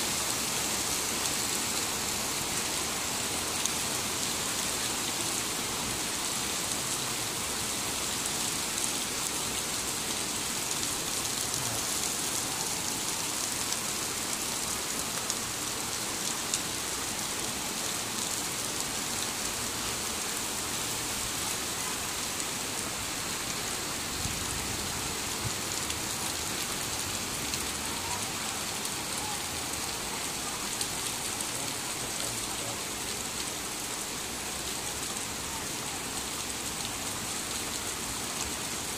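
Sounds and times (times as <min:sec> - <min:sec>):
heavy rain hiss: 0:00.0 - 0:38.9.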